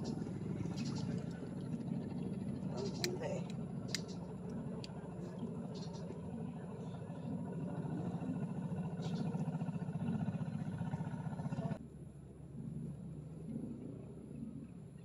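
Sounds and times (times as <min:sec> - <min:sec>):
small engine humming: 0:00.0 - 0:15.0
faint clicks: 0:02.8 - 0:06.2.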